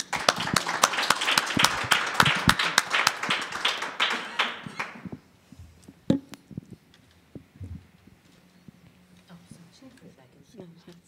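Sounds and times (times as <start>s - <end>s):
audience applause: 0.0s - 5.2s.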